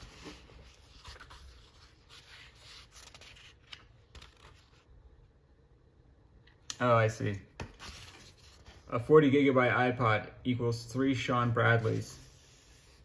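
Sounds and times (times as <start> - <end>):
magazine pages rustling: 0.0 - 4.9.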